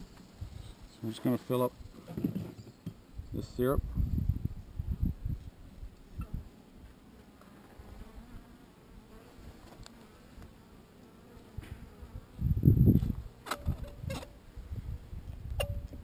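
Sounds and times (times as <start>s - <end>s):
bees buzzing: 5.7s - 13.5s.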